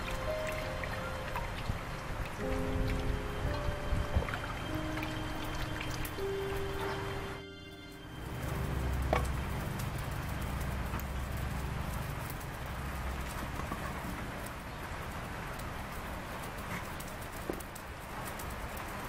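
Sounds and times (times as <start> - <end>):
rain hiss: 0.0 - 19.0
low rumble: 0.6 - 14.7.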